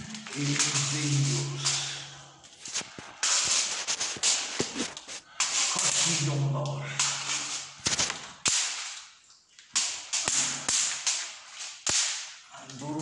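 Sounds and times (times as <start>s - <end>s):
electric fly swatter zapping: 0.0s - 1.9s, 3.2s - 9.0s, 9.7s - 12.4s.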